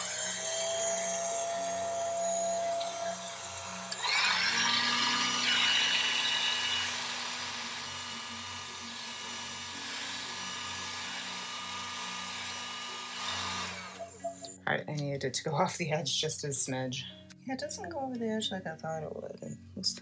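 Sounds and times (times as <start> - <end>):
heat gun blowing whir: 0.0 - 14.4.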